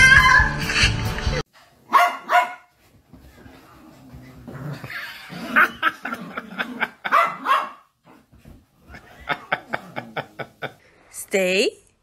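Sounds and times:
dog barking: 0:01.9 - 0:02.7, 0:07.0 - 0:07.9.

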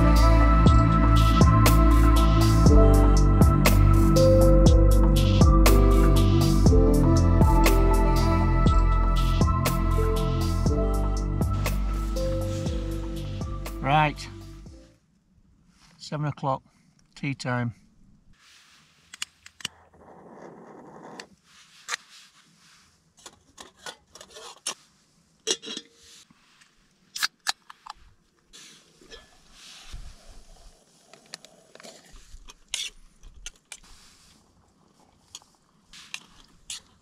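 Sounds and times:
metal pot and utensils clattering: 0:25.5 - 0:26.1, 0:29.1 - 0:29.4.

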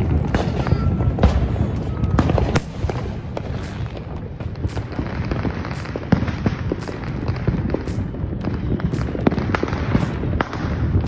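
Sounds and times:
fireworks crackling and banging: 0:00.0 - 0:11.0.

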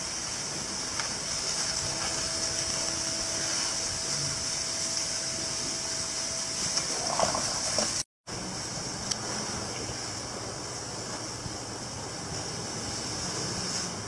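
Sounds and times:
steady high-pitched hiss: 0:00.0 - 0:14.0
elephant chewing watermelon: 0:06.6 - 0:08.0.

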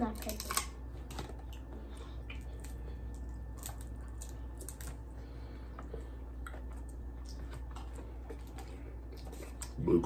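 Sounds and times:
crab shell clicking and crackling: 0:00.0 - 0:01.7
low steady hum: 0:00.0 - 0:10.0.

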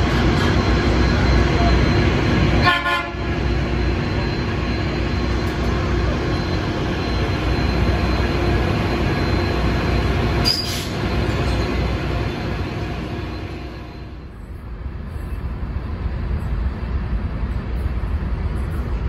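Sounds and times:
train rumble: 0:00.0 - 0:19.0
high wheel squeal: 0:09.1 - 0:11.8
sharp squeak: 0:10.4 - 0:11.7.

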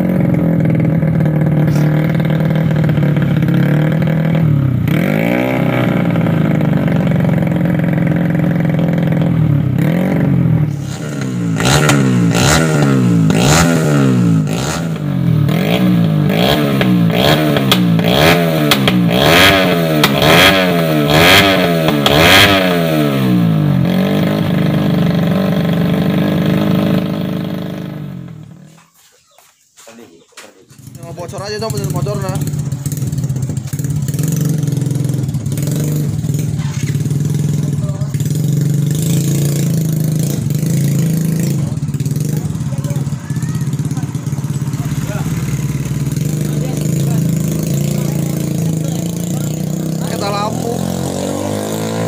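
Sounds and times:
dirt bike engine revving: 0:00.0 - 0:28.7, 0:30.7 - 0:52.0
exhaust rattle: 0:00.0 - 0:28.8, 0:30.6 - 0:52.0.

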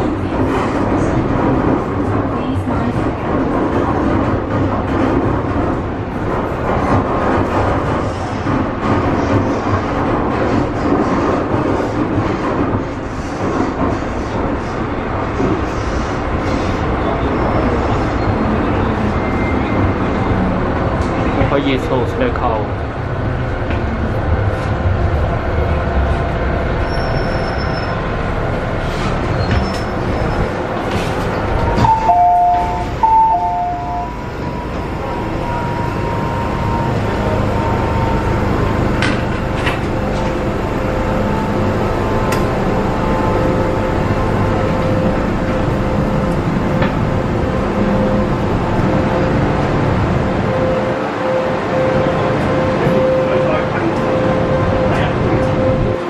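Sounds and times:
train running noise: 0:00.0 - 0:56.0
train electrical hum: 0:22.5 - 0:56.0
two-note electronic door chime: 0:31.8 - 0:34.8.

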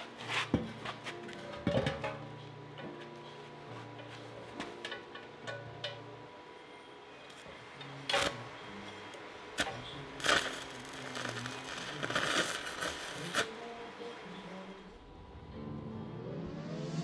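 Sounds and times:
arc welding crackling: 0:07.3 - 0:15.0
welding arc striking cracks: 0:09.6 - 0:13.5.

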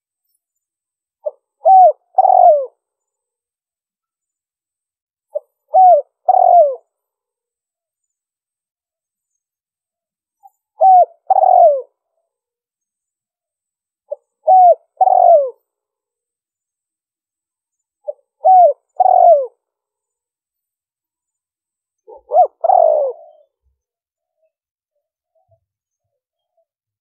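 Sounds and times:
dove cooing: 0:01.2 - 0:02.8, 0:05.3 - 0:06.9, 0:10.8 - 0:11.9, 0:14.1 - 0:15.6, 0:18.0 - 0:19.6, 0:22.1 - 0:23.6.

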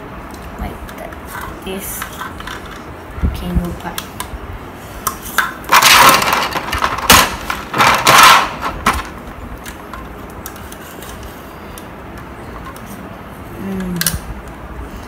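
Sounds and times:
plastic bricks handled: 0:05.4 - 0:11.3.

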